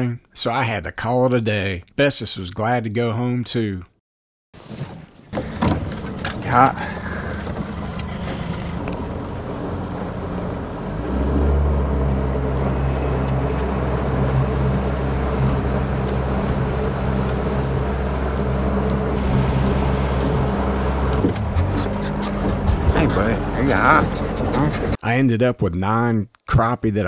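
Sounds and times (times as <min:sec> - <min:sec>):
outboard motor running: 0:05.3 - 0:25.0.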